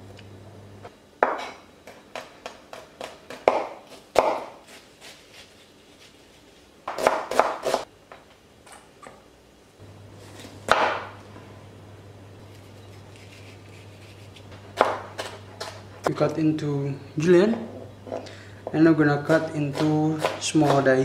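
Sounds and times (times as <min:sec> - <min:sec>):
knife chopping on plastic board: 0:01.2 - 0:04.6, 0:06.9 - 0:07.9, 0:14.8 - 0:15.8, 0:19.2 - 0:21.0.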